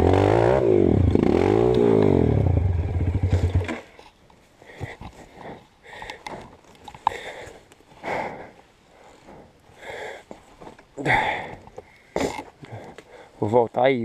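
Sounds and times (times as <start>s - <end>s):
person breathing heavily: 4.6s - 13.4s.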